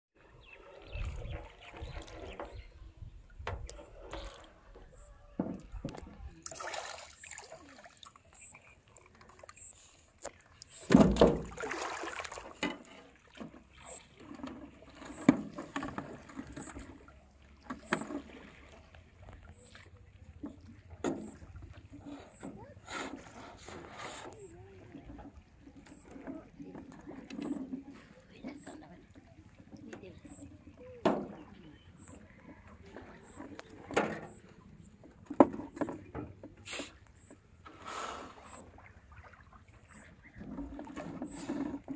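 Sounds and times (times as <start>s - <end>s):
water sloshing and splashing: 0.2s - 41.9s
boat knocks and bumps: 2.4s - 6.4s, 10.8s - 11.8s, 32.2s - 36.6s.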